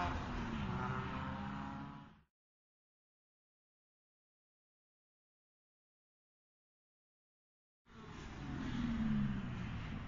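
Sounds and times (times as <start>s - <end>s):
faint car: 0.0s - 2.3s, 7.9s - 10.0s.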